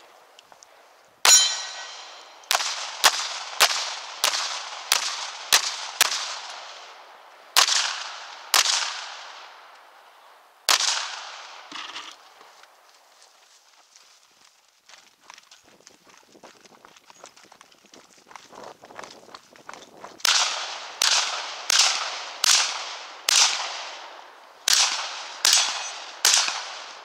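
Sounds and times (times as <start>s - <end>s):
handgun shots echoing: 1.2s - 7.0s, 7.6s - 9.8s, 10.7s - 12.1s, 20.2s - 27.0s.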